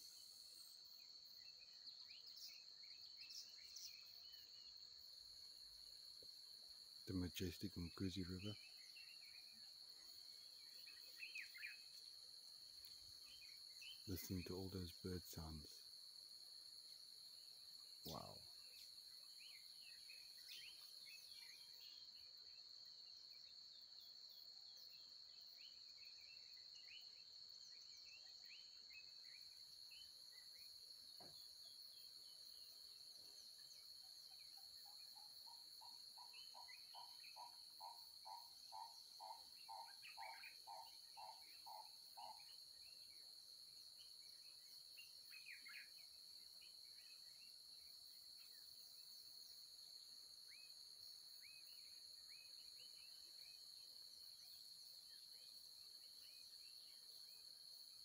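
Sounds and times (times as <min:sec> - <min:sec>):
high-pitched insect drone: 0:17.9 - 0:22.3.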